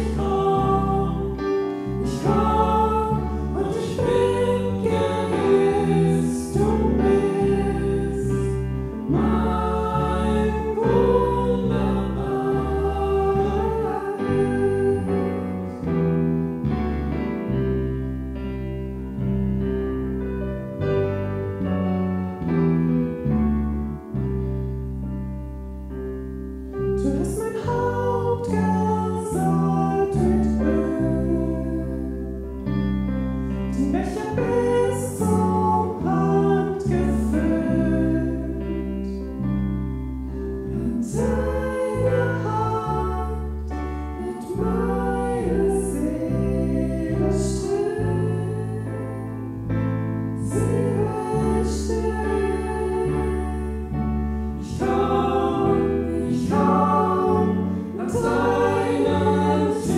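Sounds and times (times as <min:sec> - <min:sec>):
women singing worship song: 0:00.0 - 0:15.9, 0:27.0 - 0:32.3, 0:33.7 - 0:39.3, 0:40.6 - 0:49.3, 0:50.4 - 0:59.9
digital piano: 0:00.0 - 0:59.9
electric bass: 0:00.0 - 0:59.9.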